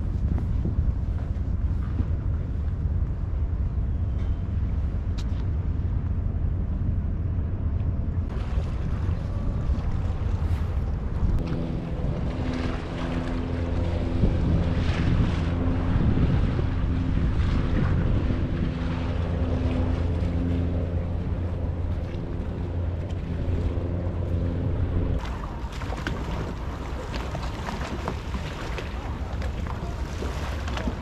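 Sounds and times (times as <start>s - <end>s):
boat engine droning: 0.0s - 31.0s
wind buffeting microphone: 0.0s - 31.0s
water lapping against stone: 25.2s - 31.0s.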